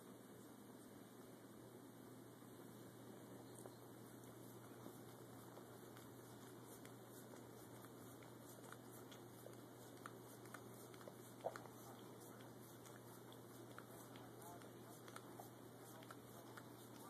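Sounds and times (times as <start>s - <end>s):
dog licking and biting ice: 4.6s - 17.0s.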